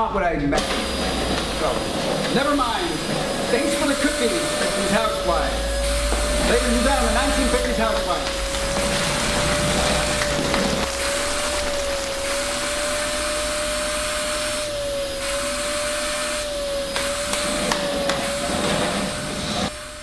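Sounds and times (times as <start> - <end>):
vacuum cleaner running: 0.6 - 20.0.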